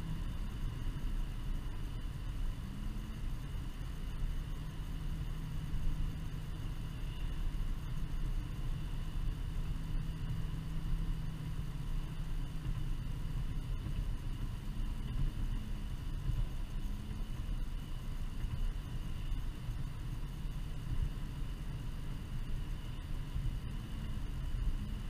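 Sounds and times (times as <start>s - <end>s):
car engine and tyre rumble: 0.0s - 25.0s.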